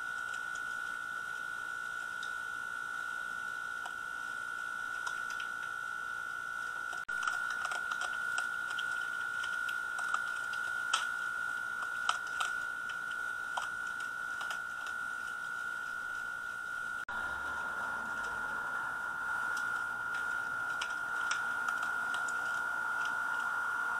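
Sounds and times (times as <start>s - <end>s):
steady high whine: 0.0s - 23.9s
animal chewing and crunching: 4.9s - 5.8s, 6.7s - 23.9s.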